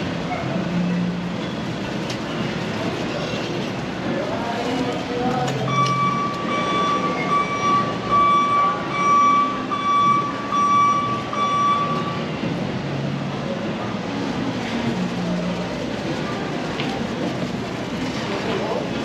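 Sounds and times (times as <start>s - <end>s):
high-pitched alarm tone: 5.6s - 12.3s.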